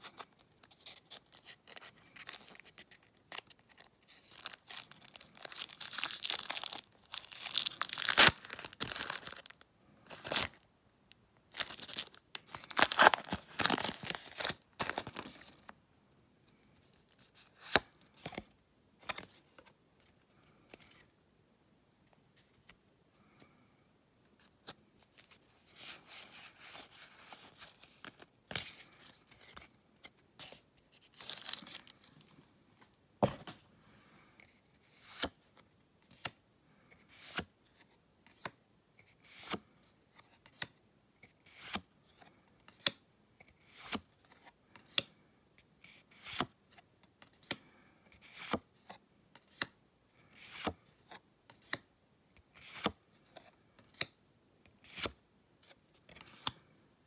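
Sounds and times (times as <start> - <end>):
cards rustling: 0.0 - 10.6, 11.5 - 15.7, 24.4 - 32.3.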